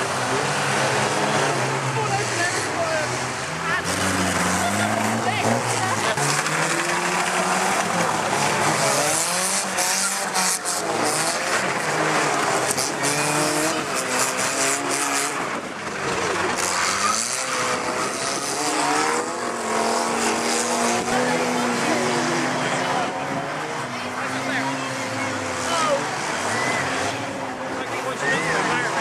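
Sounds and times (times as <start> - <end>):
small engines revving: 0.0 - 29.0
cars knocking into each other: 3.8 - 18.2.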